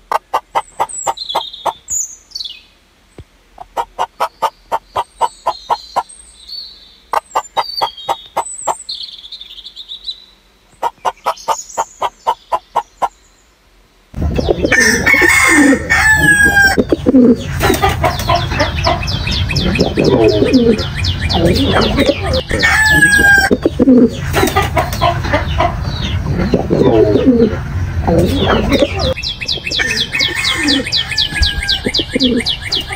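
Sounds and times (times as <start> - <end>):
chickens clucking: 0.0 - 1.9, 3.6 - 6.1, 7.1 - 8.8, 10.7 - 13.1, 14.2 - 32.9
rooster crowing: 14.7 - 16.9, 21.8 - 23.6, 29.7 - 32.5.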